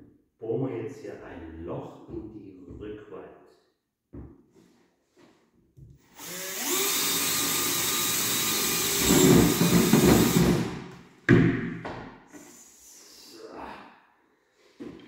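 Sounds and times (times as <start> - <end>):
cordless drill boring: 6.1 - 10.8.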